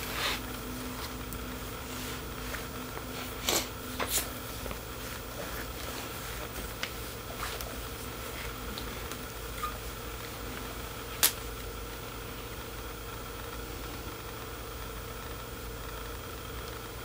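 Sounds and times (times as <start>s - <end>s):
low background hum: 0.0s - 17.0s
sharp click: 11.2s - 11.4s.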